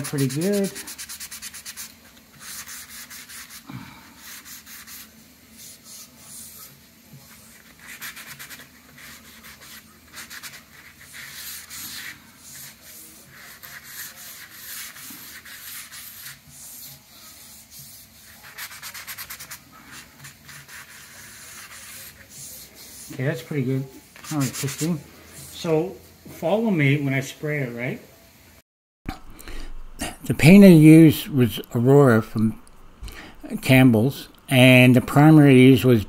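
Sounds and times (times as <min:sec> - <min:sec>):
sandpaper rubbing on wood: 0:00.0 - 0:25.6.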